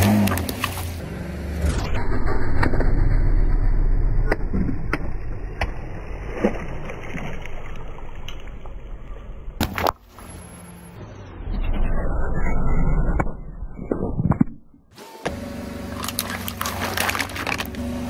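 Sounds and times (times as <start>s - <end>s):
low rumble: 0.9s - 9.6s, 11.0s - 14.9s
water splashing on asphalt: 4.3s - 8.9s, 15.9s - 17.8s.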